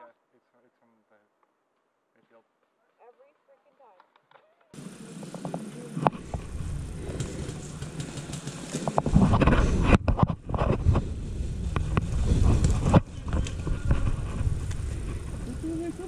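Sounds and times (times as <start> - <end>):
low rumbling noise: 4.8 - 16.0.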